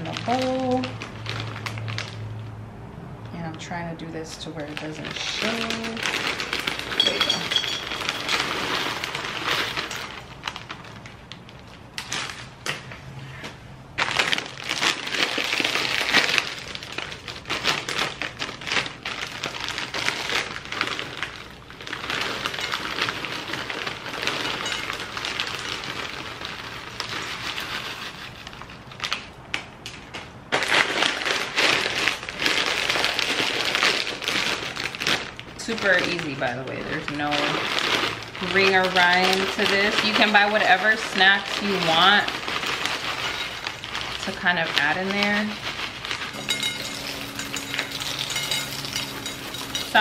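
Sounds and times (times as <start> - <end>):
plastic bags rustling: 0.0 - 2.5, 3.6 - 50.0
popcorn pouring into glass bowl: 4.8 - 10.9, 14.2 - 28.4, 30.9 - 50.0.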